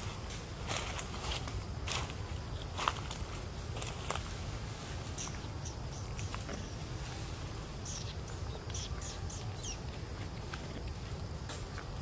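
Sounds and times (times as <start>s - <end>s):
high bird chirps: 7.8s - 10.0s.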